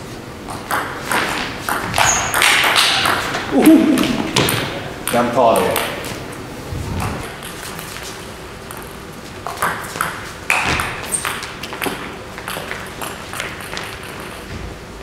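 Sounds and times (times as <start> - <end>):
table tennis ball hits: 4.0 - 6.1.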